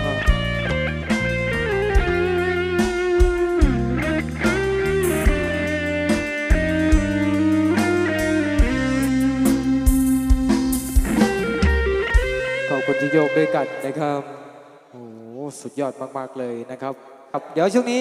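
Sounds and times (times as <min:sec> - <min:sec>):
stepping bass line: 0:00.0 - 0:12.7
plucked string lead: 0:00.0 - 0:14.3
drum hits: 0:02.0 - 0:12.6.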